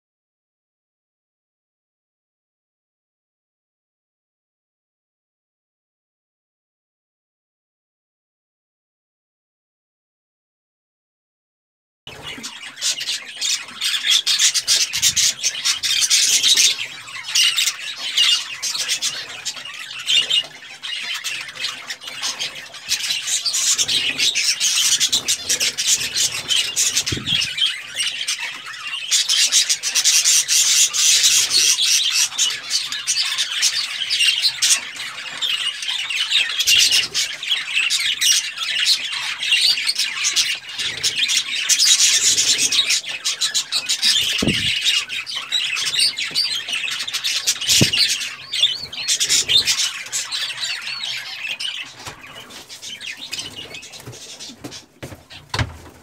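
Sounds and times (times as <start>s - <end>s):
budgerigars chattering: 12.1s - 55.5s.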